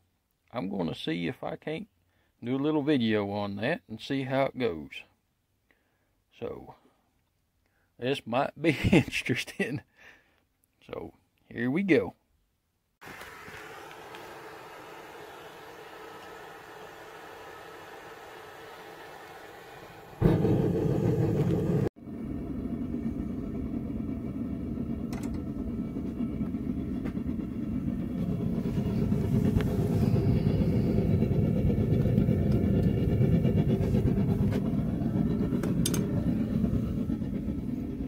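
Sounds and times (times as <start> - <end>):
burner igniting with loud rush: 13.0 - 38.0
gas forge burner roaring: 13.0 - 38.0.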